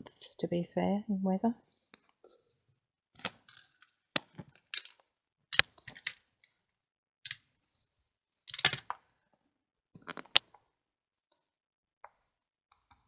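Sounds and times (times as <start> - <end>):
paper and tools clicking and tapping: 3.2 - 6.6, 8.5 - 9.1, 11.3 - 13.0.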